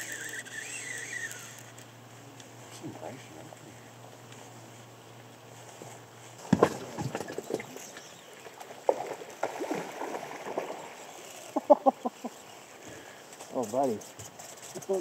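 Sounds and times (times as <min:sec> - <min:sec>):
thump on raft: 0:06.4 - 0:07.7
water gurgling against raft: 0:06.4 - 0:11.7.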